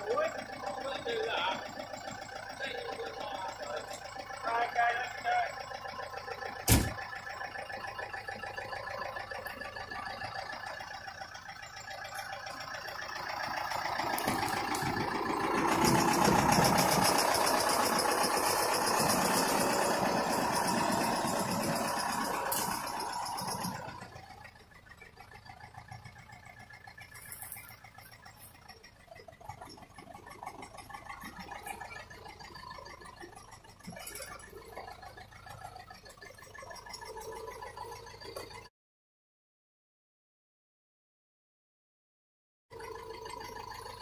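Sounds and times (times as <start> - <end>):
tractor diesel engine running: 0.0 - 38.7, 42.7 - 44.0
sharp knock: 6.7 - 7.0.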